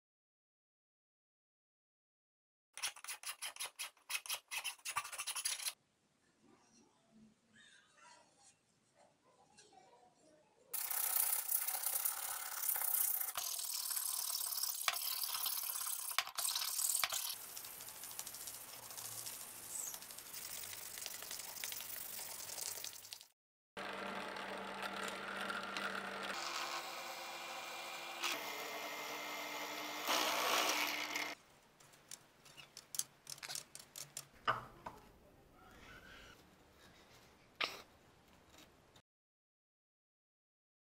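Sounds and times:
file scraping wood: 0:02.8 - 0:05.8.

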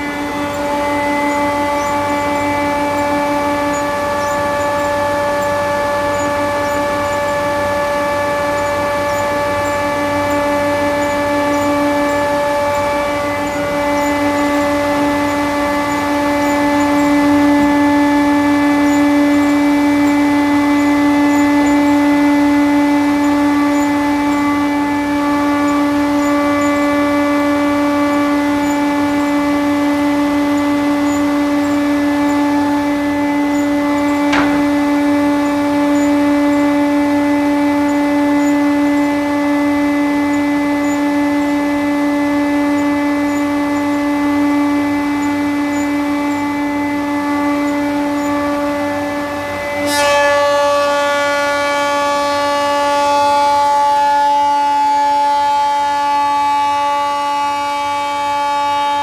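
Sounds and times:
thickness planer whining: 0:00.0 - 0:59.0
sharp knock: 0:34.2 - 0:35.2.

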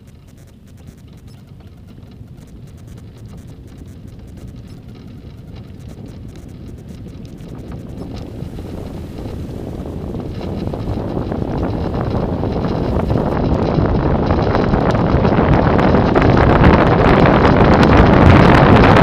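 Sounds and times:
tyre rumble: 0:00.0 - 0:19.0
wind rushing over microphone: 0:00.0 - 0:19.0.

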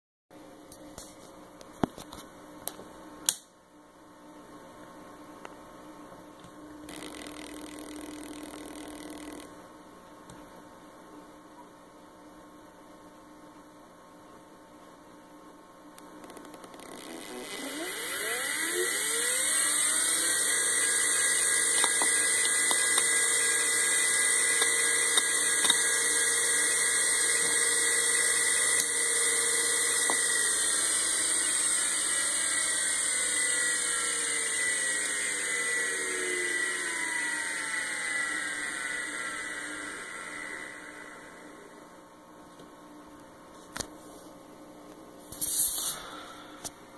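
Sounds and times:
faint hum: 0:00.3 - 0:46.9
hard drive motor whine: 0:06.2 - 0:10.4, 0:16.0 - 0:43.2
hard drive clicks: 0:06.9 - 0:09.6, 0:16.0 - 0:17.1.

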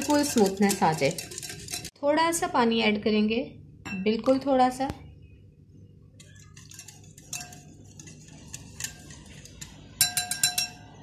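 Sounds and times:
wire whisk clinking against glass: 0:00.0 - 0:01.9, 0:06.2 - 0:11.0.

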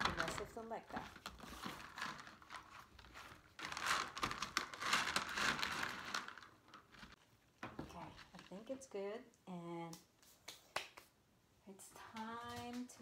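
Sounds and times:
clay pebbles clattering into pot: 0:01.7 - 0:08.3.

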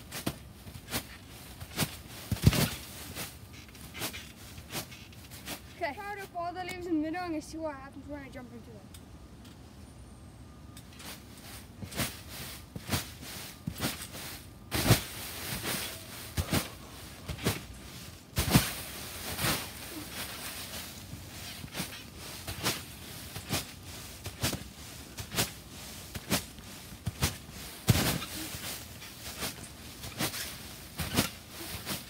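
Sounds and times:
trampoline mat thumps: 0:00.1 - 0:02.9, 0:14.7 - 0:16.7, 0:17.3 - 0:17.7, 0:18.4 - 0:20.4, 0:21.6 - 0:28.6, 0:29.2 - 0:32.0
leaves rustling and crunching: 0:11.0 - 0:32.0.

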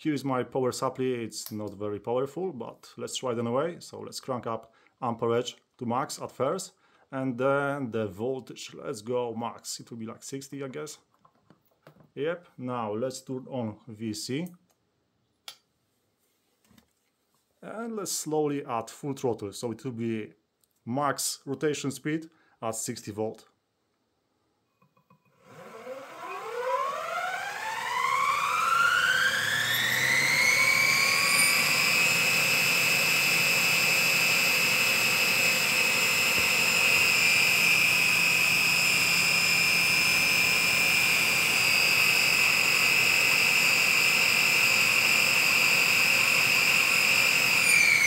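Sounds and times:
electric motor whine: 0:25.4 - 0:48.0.

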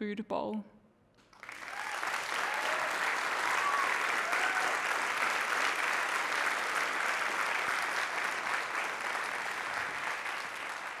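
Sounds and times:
audience applauding: 0:01.2 - 0:11.0.

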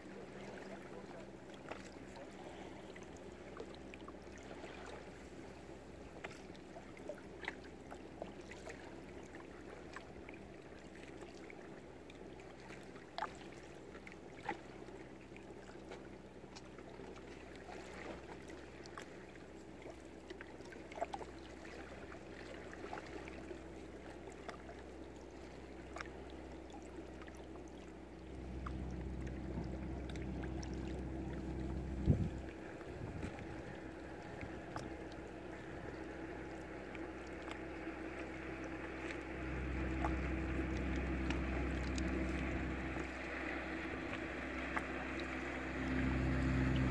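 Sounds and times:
steady low hum: 0:00.0 - 0:46.9
water lapping around boats: 0:00.0 - 0:46.9
wind buffeting microphone: 0:29.0 - 0:34.9.

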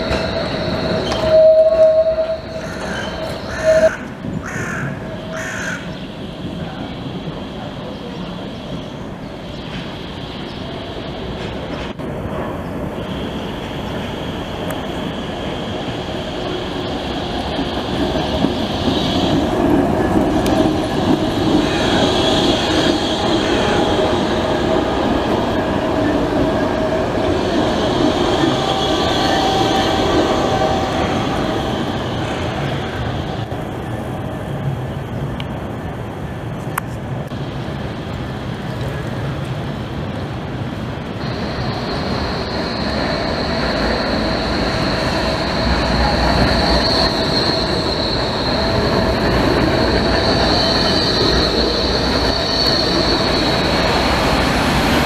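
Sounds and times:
high wheel squeal: 0:00.0 - 0:05.5, 0:27.4 - 0:33.1, 0:41.2 - 0:54.6
tram running past: 0:00.0 - 0:55.0.

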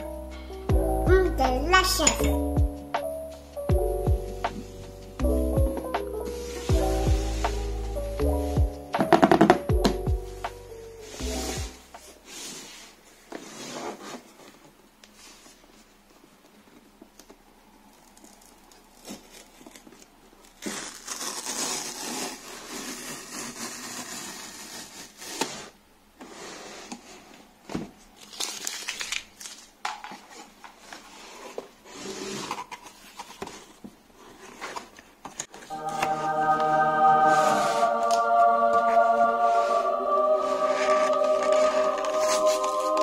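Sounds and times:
cardboard tearing: 0:18.0 - 0:25.8, 0:28.2 - 0:29.7.

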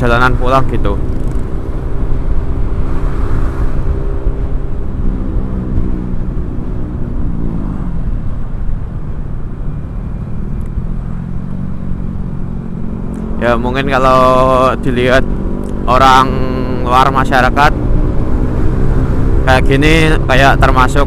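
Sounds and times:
wind rush on microphone: 0:00.0 - 0:11.2.

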